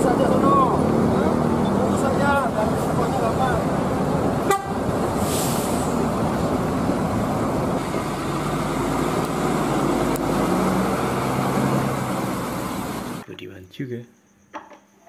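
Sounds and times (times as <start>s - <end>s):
coach driving past on wet road: 4.3s - 13.2s
brief high hiss: 5.2s - 6.0s.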